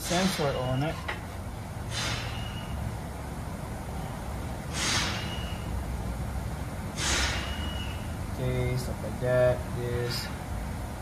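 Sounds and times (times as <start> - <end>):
low steady rumble: 0.0 - 11.0
air hissing with whistle: 1.9 - 2.8, 4.7 - 5.8, 7.0 - 8.1.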